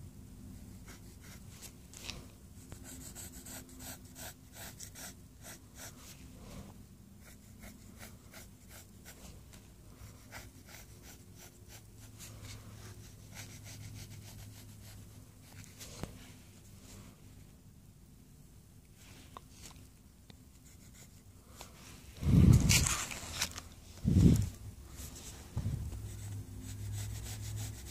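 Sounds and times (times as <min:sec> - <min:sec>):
faint low hum: 0:00.0 - 0:27.9
pencil scratching on paper: 0:00.6 - 0:01.7, 0:02.7 - 0:05.9, 0:07.2 - 0:09.2, 0:10.1 - 0:15.8, 0:20.6 - 0:21.2, 0:26.1 - 0:27.9.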